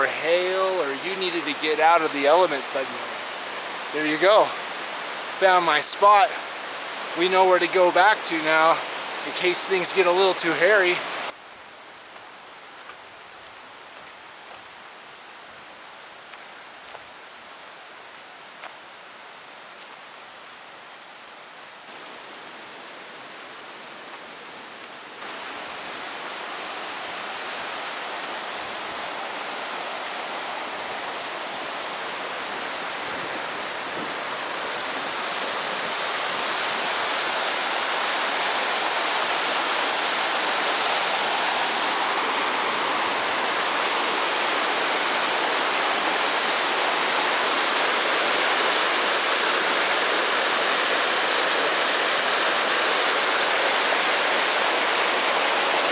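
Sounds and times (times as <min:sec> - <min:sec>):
rushing creek water: 0:00.0 - 0:55.9.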